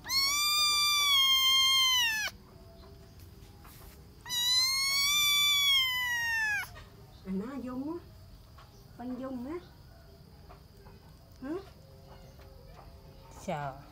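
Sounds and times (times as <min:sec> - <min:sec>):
kitten meowing: 0:00.0 - 0:02.4, 0:04.2 - 0:06.8.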